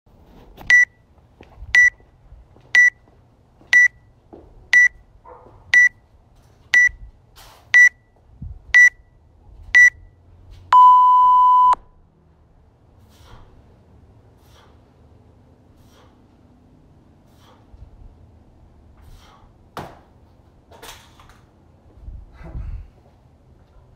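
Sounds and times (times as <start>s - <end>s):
long lower beep: 10.7s - 11.8s
short high beeps: 10.8s - 11.8s.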